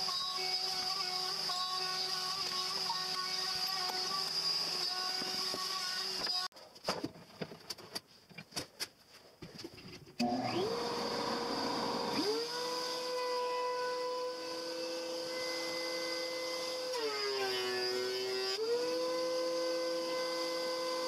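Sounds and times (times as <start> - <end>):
dust extractor motor: 10.2 - 13.2
planer motor whine: 10.2 - 21.0.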